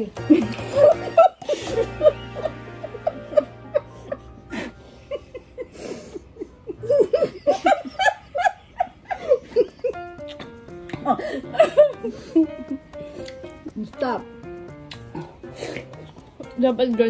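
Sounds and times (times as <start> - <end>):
women laughing and giggling: 0.0 - 13.0
background music: 0.0 - 17.0.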